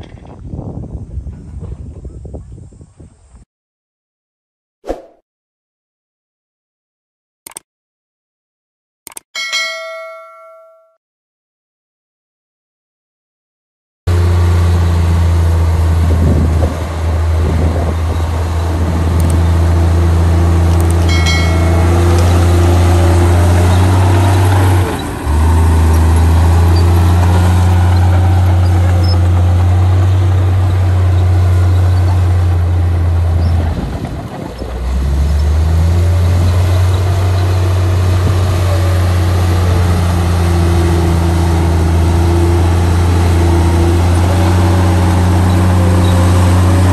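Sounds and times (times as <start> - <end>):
bulldozer diesel engine running: 14.1 - 46.9.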